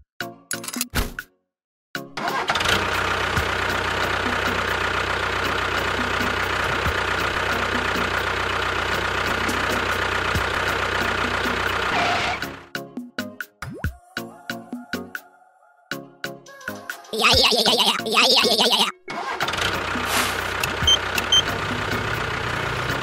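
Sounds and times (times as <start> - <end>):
tractor engine running: 2.4 - 11.9, 19.5 - 23.0.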